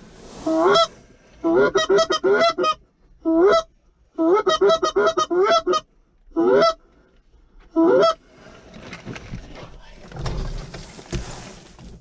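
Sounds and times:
goose honking: 0:00.5 - 0:06.8.

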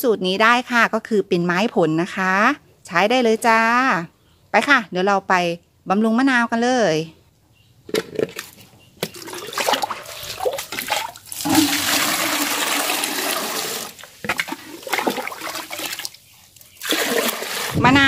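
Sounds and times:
choppy splashing: 0:09.1 - 0:16.2, 0:16.8 - 0:18.0
liquid pouring into watering can: 0:09.1 - 0:16.2, 0:16.8 - 0:17.9.

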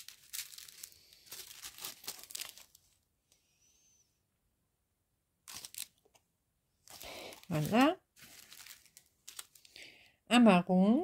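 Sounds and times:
plastic packets crinkling: 0:00.0 - 0:03.0, 0:05.5 - 0:06.2, 0:06.8 - 0:10.1.

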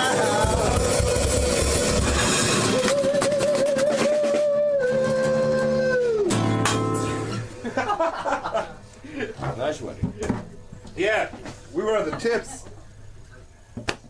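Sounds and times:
crash of guitars and cymbals: 0:00.0 - 0:04.5, 0:06.3 - 0:07.6
drum kit: 0:00.0 - 0:07.6
acoustic guitars: 0:00.0 - 0:11.7.

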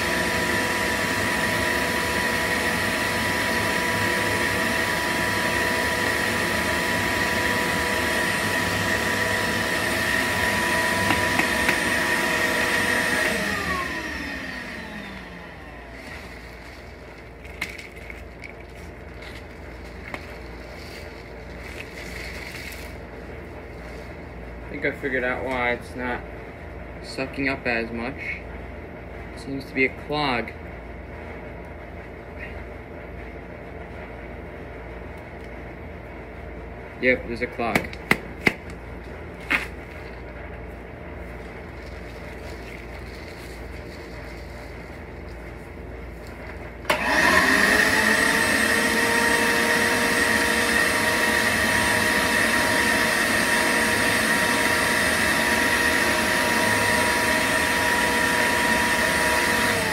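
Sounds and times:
shop vacuum running: 0:00.0 - 0:59.9
vacuum hose being shaken: 0:15.7 - 0:24.3, 0:39.3 - 0:46.6
steady low hum: 0:15.7 - 0:46.9.

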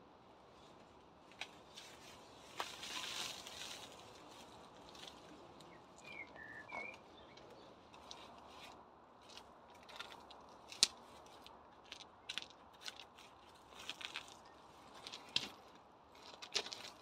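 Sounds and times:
pebbles clicking together: 0:09.3 - 0:15.6.

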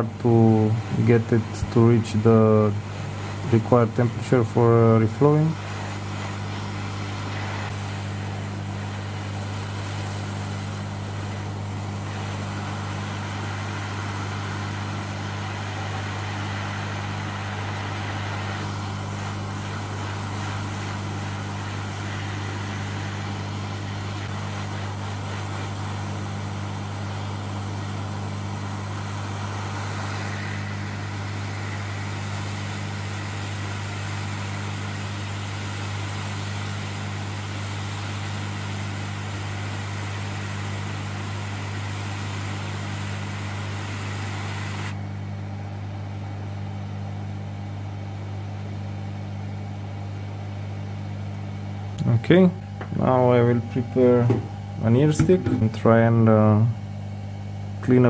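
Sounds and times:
hot air hissing: 0:00.0 - 0:45.3.

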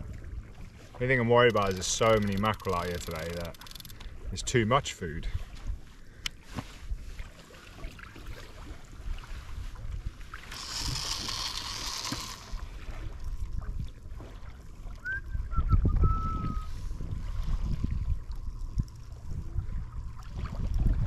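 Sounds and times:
water lapping around kayak: 0:00.0 - 0:21.0
thin whistle: 0:15.0 - 0:16.8
wind gusting on microphone: 0:15.1 - 0:21.0.

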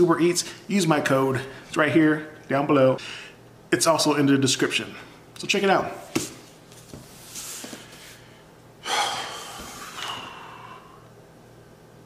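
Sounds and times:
man exhaling heavily: 0:08.8 - 0:11.1.

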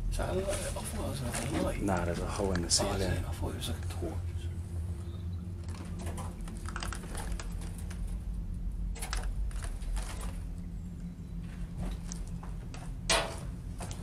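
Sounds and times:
steady low hum: 0:00.0 - 0:14.0
clutter clicking and knocking: 0:05.6 - 0:08.2, 0:09.0 - 0:10.5, 0:11.5 - 0:14.0.

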